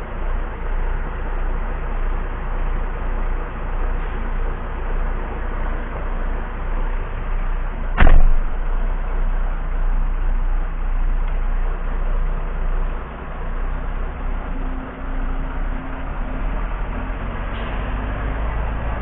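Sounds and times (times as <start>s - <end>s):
diesel engine idling: 0.0s - 19.0s
cab door slamming: 8.0s - 8.8s.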